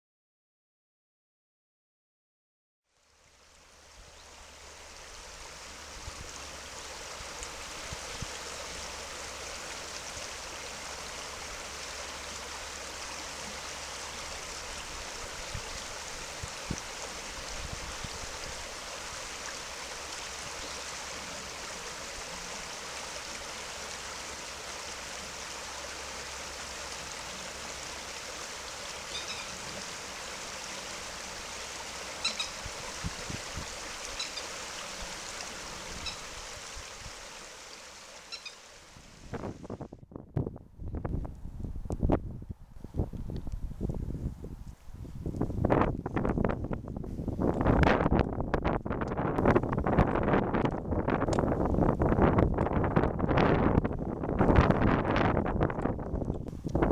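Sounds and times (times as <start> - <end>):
river water rushing: 3.1 - 39.6.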